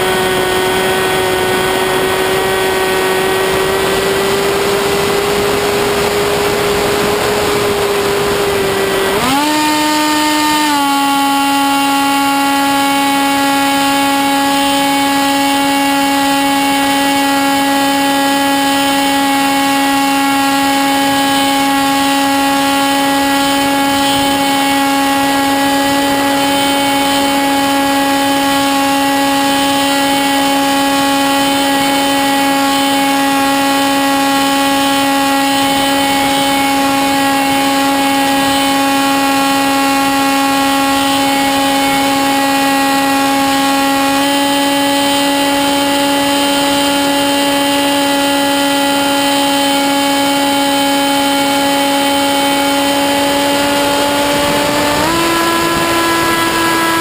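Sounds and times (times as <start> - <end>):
electric motor and propeller whine: 0.0 - 57.0.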